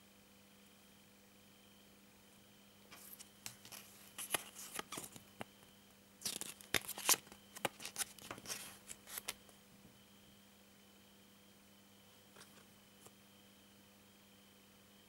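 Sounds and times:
paper crackling and rustling: 2.9s - 5.6s, 6.2s - 9.4s.

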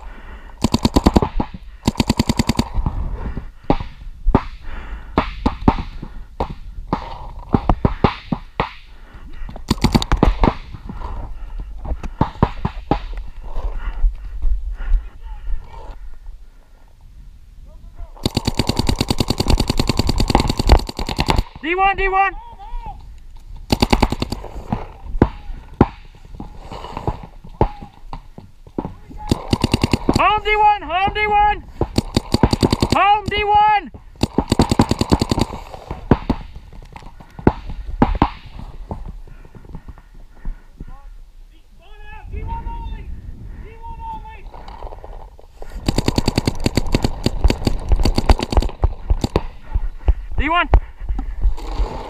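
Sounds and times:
paintball markers firing: 0.6s - 2.8s, 9.6s - 10.7s, 18.2s - 21.6s, 23.6s - 26.1s, 29.2s - 30.6s, 31.8s - 33.5s, 34.1s - 38.7s, 45.6s - 49.6s.

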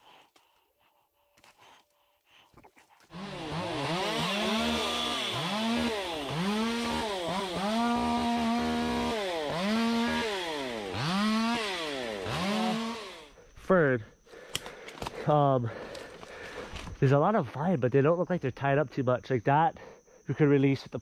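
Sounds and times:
chainsaw revving while cutting: 3.1s - 13.3s.

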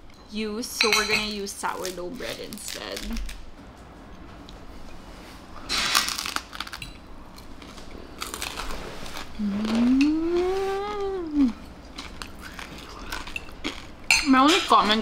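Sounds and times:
crunching of bread being chewed: 5.8s - 14.1s.

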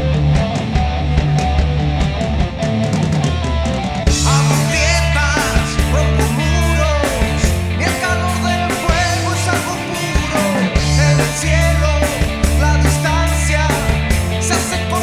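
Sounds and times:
bass guitar: 0.0s - 15.0s
drums: 0.0s - 15.0s
electric guitar: 0.0s - 15.0s
man singing: 4.1s - 15.0s.

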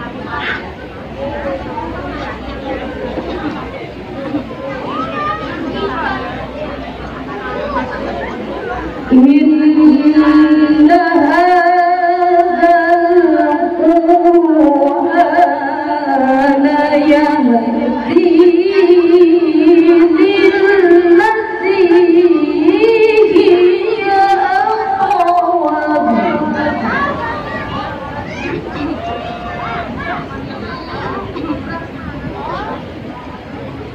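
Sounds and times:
woman chanting melodically: 9.1s - 27.3s.

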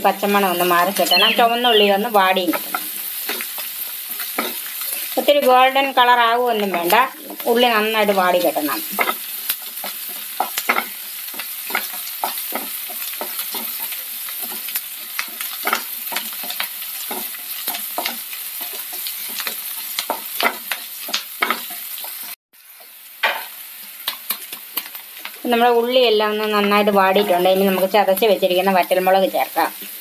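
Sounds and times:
vegetables sizzling in oil: 0.0s - 30.0s
wooden spatula scraping a pan: 8.9s - 22.2s.

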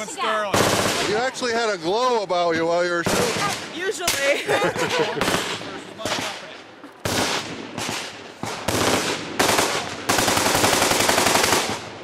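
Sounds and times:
machine-gun fire: 0.5s - 1.2s, 7.0s - 12.0s.

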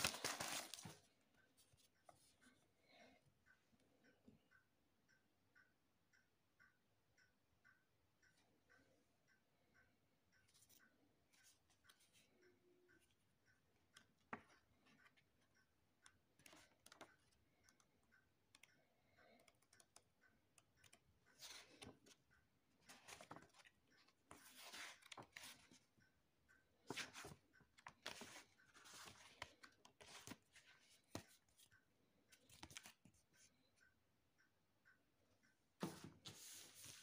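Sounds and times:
paper pages rustling: 0.0s - 1.1s, 22.9s - 23.7s, 24.3s - 25.8s, 26.9s - 31.2s.

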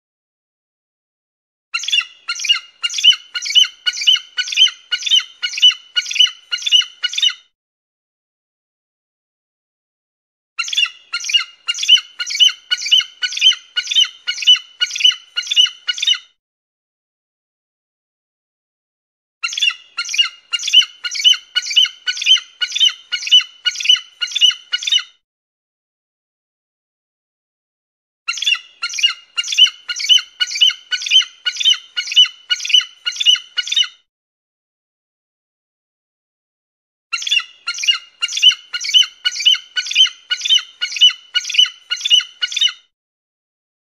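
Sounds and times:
eagle calling: 1.8s - 7.4s, 10.6s - 16.2s, 19.4s - 25.1s, 28.3s - 33.9s, 37.2s - 42.8s.

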